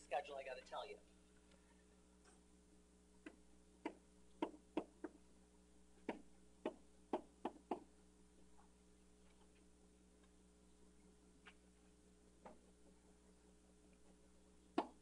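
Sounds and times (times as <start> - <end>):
stylus tapping on whiteboard: 3.2 - 5.2, 6.0 - 7.9.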